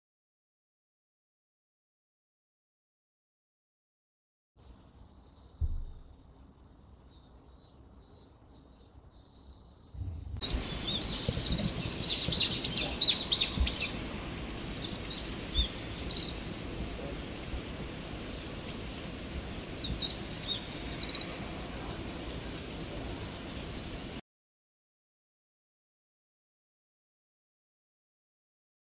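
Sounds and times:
outdoor background hiss: 4.6 - 24.2
small birds chirping: 4.6 - 24.2.

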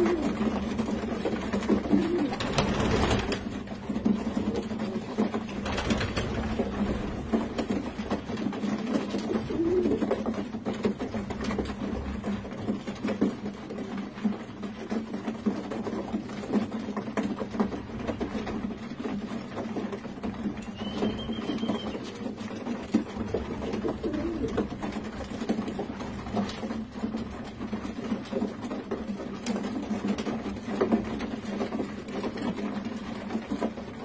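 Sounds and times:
pigeons cooing: 0.0 - 2.9, 8.8 - 10.4, 20.6 - 22.3, 23.4 - 25.1.

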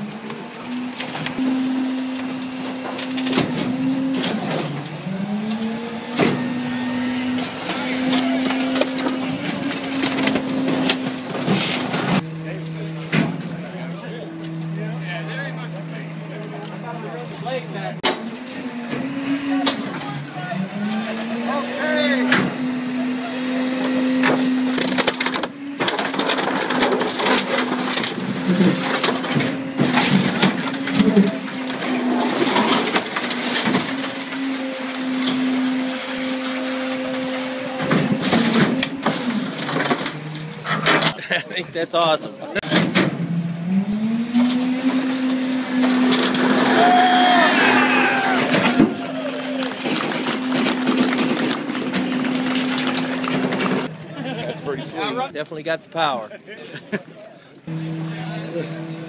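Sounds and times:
engine and hydraulic drone: 0.0 - 41.2, 42.4 - 54.3, 57.5 - 59.0
metal and plastic crumpling: 6.4 - 12.2, 23.9 - 41.4, 44.6 - 53.9
metal cracking and snapping: 8.1 - 12.2, 24.3 - 34.6.

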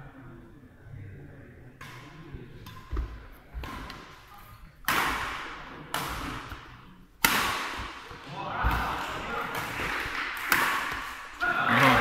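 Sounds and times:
racket hitting shuttlecock: 4.8 - 11.4.

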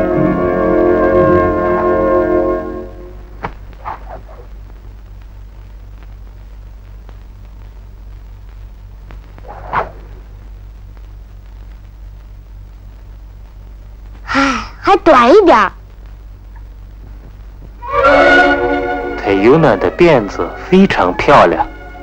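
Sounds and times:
brass chord: 0.0 - 3.3, 17.8 - 22.0
film soundtrack hum and hiss: 0.0 - 22.0.

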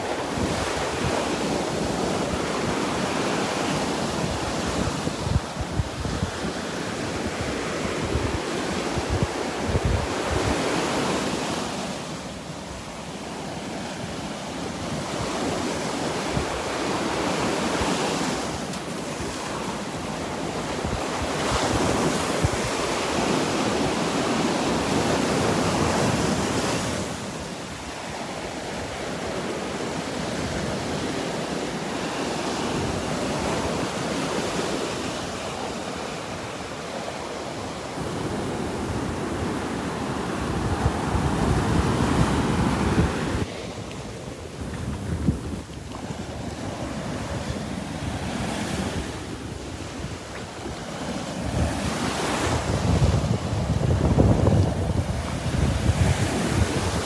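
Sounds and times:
wind buffeting microphone: 0.0 - 11.8, 14.8 - 27.4, 37.6 - 57.0
surf breaking on beach: 13.2 - 57.0.

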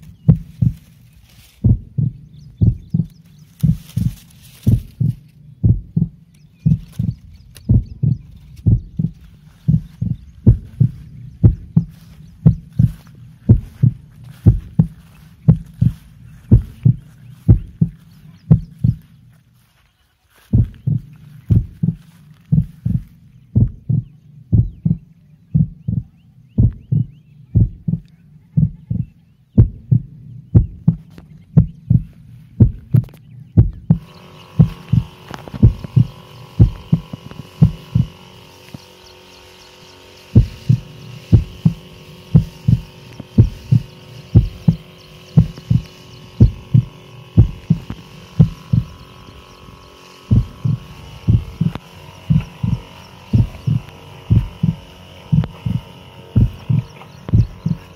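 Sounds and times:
low thumps: 0.0 - 1.0, 1.6 - 19.2, 20.5 - 57.9
sprayer pump whining: 0.0 - 57.9
hiss of spray mist: 34.0 - 57.9.

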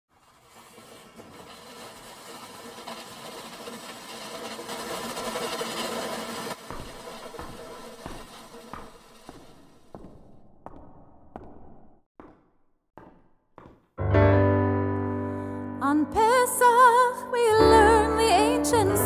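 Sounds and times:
hissy rush: 0.1 - 9.4
footsteps on stage floor: 6.6 - 11.6, 13.0 - 14.0.

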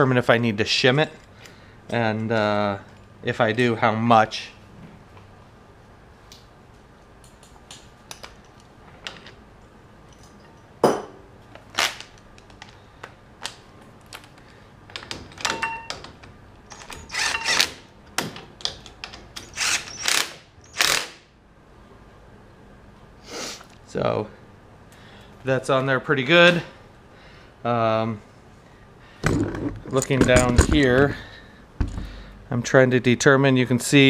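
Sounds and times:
cordless drill bursts: 17.0 - 17.8, 19.5 - 21.2.

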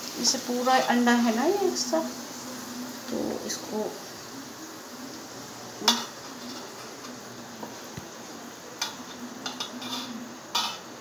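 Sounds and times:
utensils scraping a steel pan: 8.8 - 10.9.

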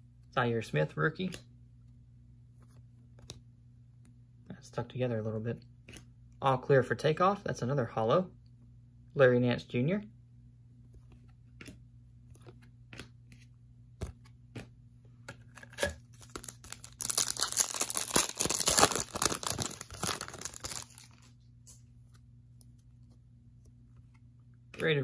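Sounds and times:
wrapper tearing and crinkling: 15.5 - 21.3.

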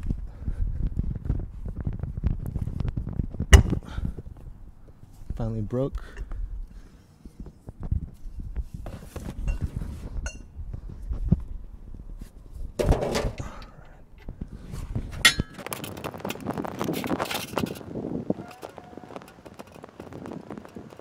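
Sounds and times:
ringing metal clink: 10.3 - 10.5, 15.2 - 15.6
metal tools clinking: 15.2 - 15.9.

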